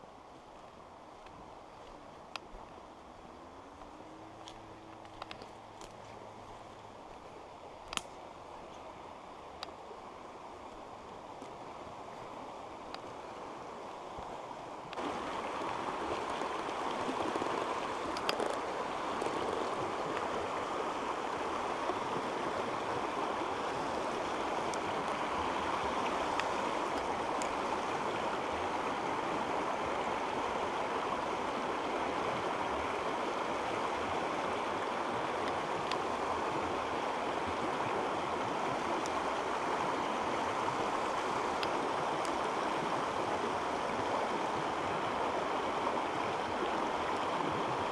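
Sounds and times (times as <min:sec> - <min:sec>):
water rushing over stones: 0:00.3 - 0:47.9
faint clicks: 0:16.2 - 0:20.3.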